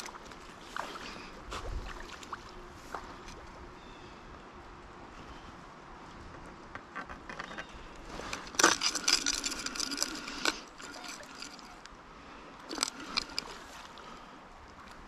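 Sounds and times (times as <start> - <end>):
rod and reel handling clicks: 7.2 - 12.0, 12.6 - 14.0.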